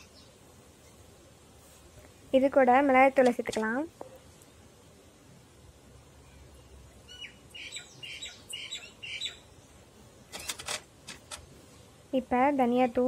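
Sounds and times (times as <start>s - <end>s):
small bird chirping: 0.0s - 1.1s, 6.2s - 9.8s
sharp clicks: 10.3s - 11.5s.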